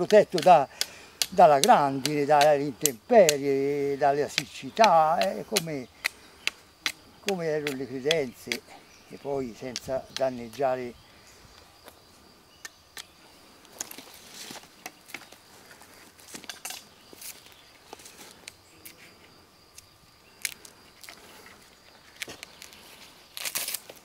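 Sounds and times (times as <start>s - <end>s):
knife scraping bark off stick: 4.4s - 8.7s.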